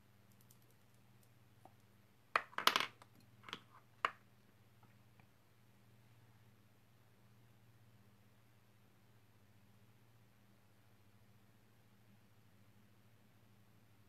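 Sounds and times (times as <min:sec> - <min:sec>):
make-up items clattering on table: 0:02.4 - 0:04.2.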